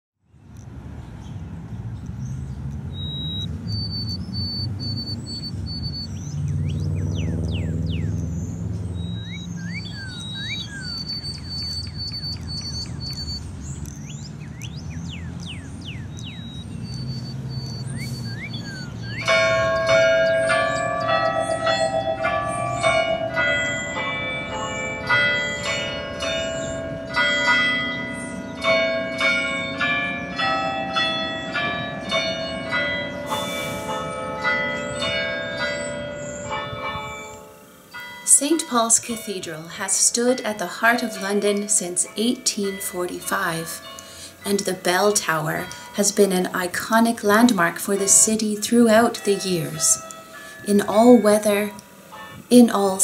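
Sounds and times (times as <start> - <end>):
faint high chirps: 8.9 - 21.0
tower bells playing a tune: 18.6 - 53.0.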